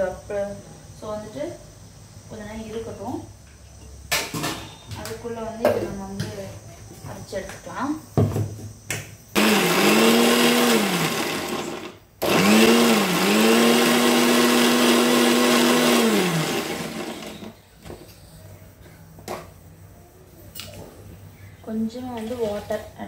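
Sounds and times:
electric blender grinding: 0:09.4 - 0:17.6.

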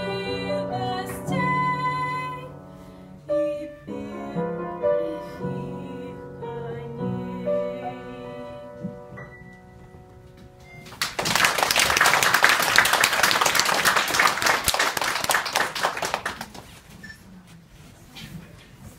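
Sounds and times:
audience clapping: 0:10.8 - 0:16.8.

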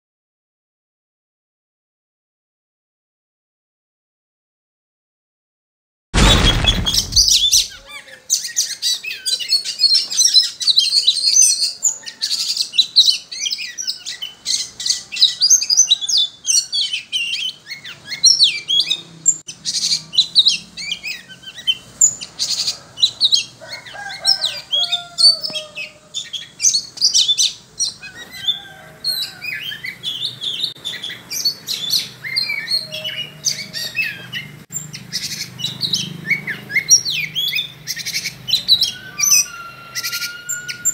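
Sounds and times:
bird singing chirps and trills: 0:07.6 - 0:40.9.

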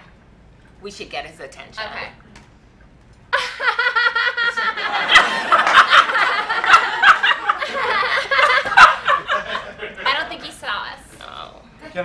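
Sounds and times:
women laughing loudly: 0:03.4 - 0:10.3.

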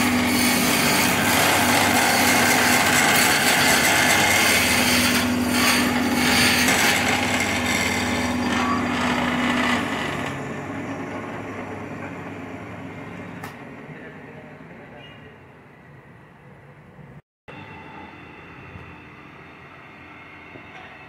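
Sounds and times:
turning tool cutting wood: 0:00.0 - 0:11.4
wood lathe motor hum: 0:00.0 - 0:13.3.

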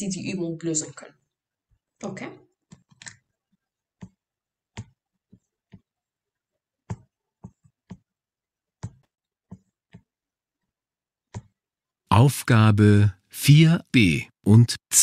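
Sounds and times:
computer mouse clicking: 0:02.7 - 0:03.2.

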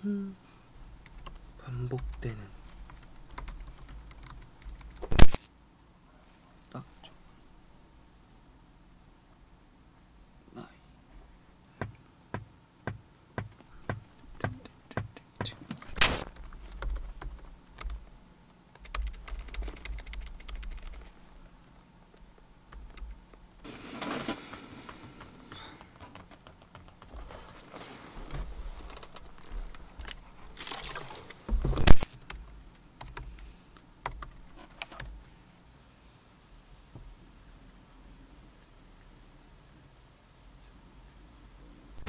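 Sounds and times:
rustling: 0:22.2 - 0:32.7.

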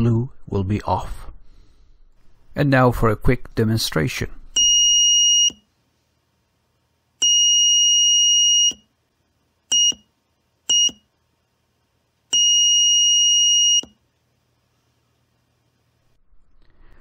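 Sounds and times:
buzzer beeping: 0:04.6 - 0:05.6, 0:07.2 - 0:08.9, 0:09.7 - 0:10.1, 0:10.7 - 0:11.1, 0:12.3 - 0:14.0.

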